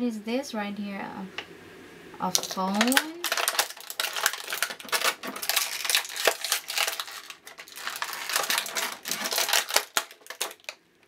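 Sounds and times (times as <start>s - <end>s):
plastic wrapping crinkling: 2.2s - 10.8s.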